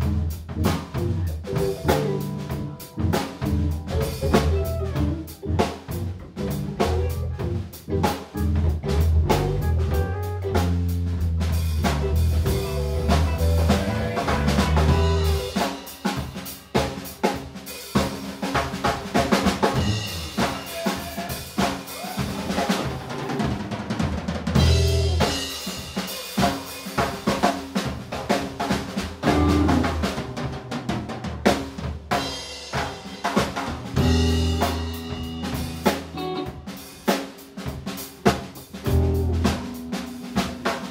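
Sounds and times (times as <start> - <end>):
live rock band playing: 0.0 - 40.9
snare and bass drum hits: 10.6 - 17.0.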